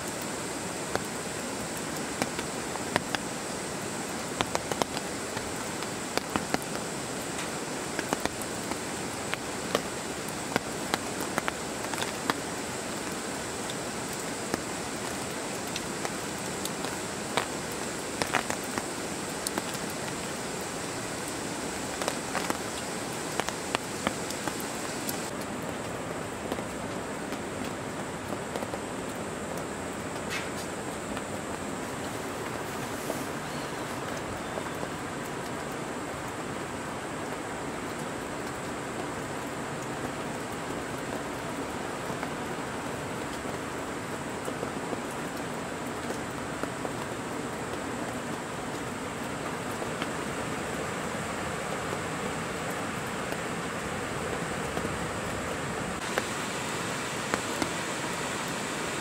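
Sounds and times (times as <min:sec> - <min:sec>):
rain falling on a tent: 0:00.0 - 0:59.0.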